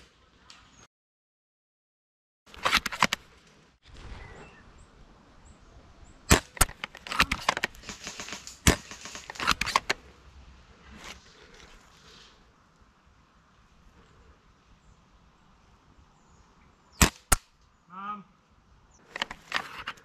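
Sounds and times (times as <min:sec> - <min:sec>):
airsoft rifle bolt clicks: 0:06.3 - 0:10.0, 0:19.1 - 0:20.0
airsoft rifle sharp snaps: 0:06.3 - 0:10.0.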